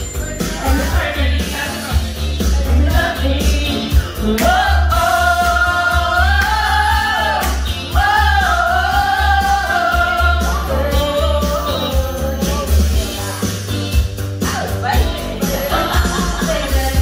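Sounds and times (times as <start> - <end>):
backing track with bass beat: 0.0 - 17.0
woman singing into microphone: 8.0 - 13.7.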